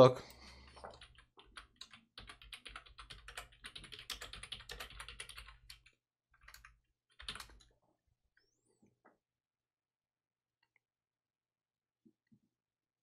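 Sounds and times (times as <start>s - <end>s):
faint keyboard typing: 0.3s - 7.8s.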